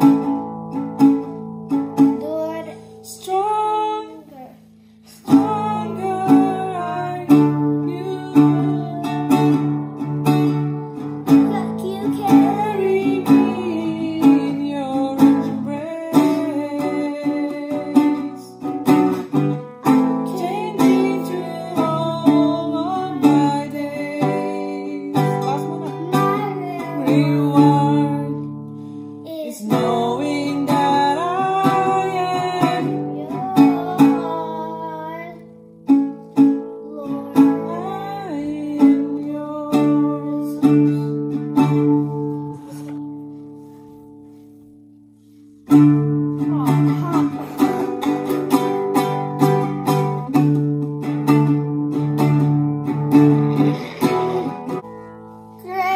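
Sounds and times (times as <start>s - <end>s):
classical guitar strumming: 0.0s - 55.9s
woman singing: 3.0s - 4.3s, 5.1s - 10.0s, 11.3s - 18.8s, 19.8s - 28.6s, 29.6s - 35.4s, 37.0s - 43.6s, 46.4s - 49.3s.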